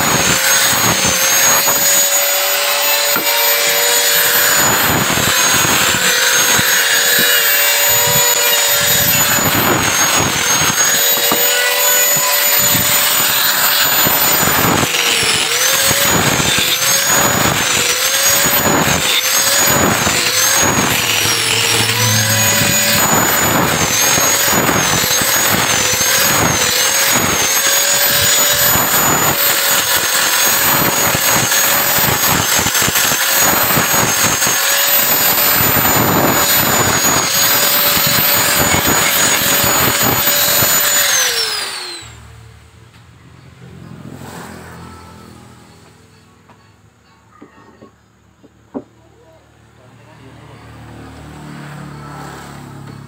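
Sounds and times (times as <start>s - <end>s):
angle grinder sanding wood: 0.0s - 42.2s.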